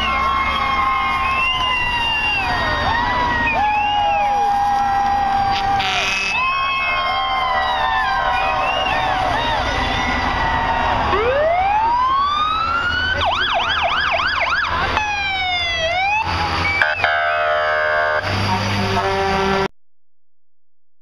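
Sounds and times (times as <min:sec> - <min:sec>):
low engine rumble: 0:00.0 - 0:19.6
emergency vehicle siren: 0:00.0 - 0:19.7
vehicle horn blasts: 0:05.5 - 0:06.4, 0:16.9 - 0:19.7.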